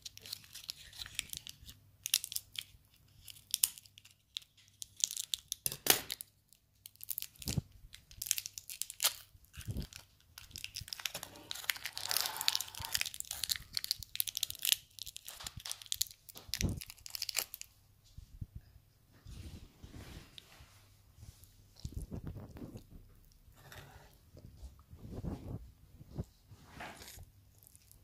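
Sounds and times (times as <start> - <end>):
candy wrapper crinkling: 0.0 - 17.8, 27.2 - 28.0.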